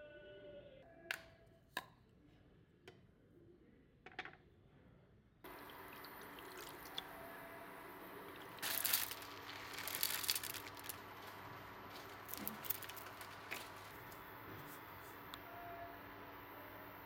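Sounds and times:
water poured into frying pan: 5.5 - 7.1
dry noodles pattering into pan: 8.4 - 14.9.

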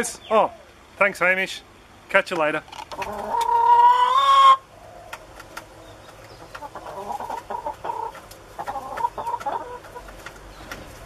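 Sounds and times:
hens clucking: 2.7 - 11.0
loud hen call: 3.1 - 4.7.

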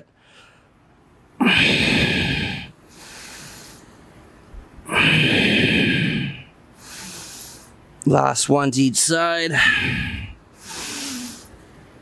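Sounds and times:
man breathing heavily: 0.1 - 0.8, 1.4 - 4.2, 4.8 - 7.8, 9.5 - 11.6.

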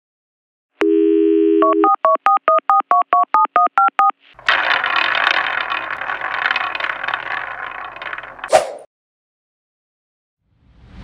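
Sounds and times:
dial tone: 0.8 - 4.1
two-tone keypad beeps: 0.8 - 4.1
spinning prize wheel rattling: 4.4 - 8.6.

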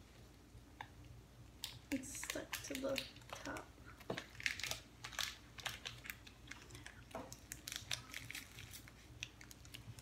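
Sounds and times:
plastic wrapper crinkling: 1.6 - 10.0.

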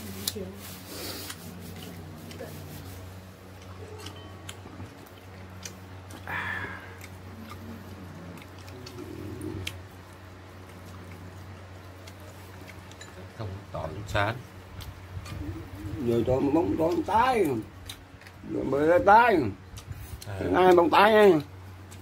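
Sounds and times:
meat tearing and chewing: 3.4 - 13.1.

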